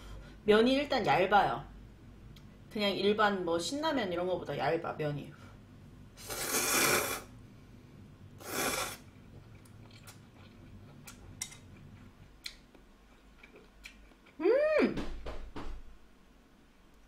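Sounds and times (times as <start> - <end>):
person slurping noodles: 6.2 - 7.3, 8.4 - 9.0
faint chewing: 9.2 - 14.4
person humming: 14.4 - 15.0.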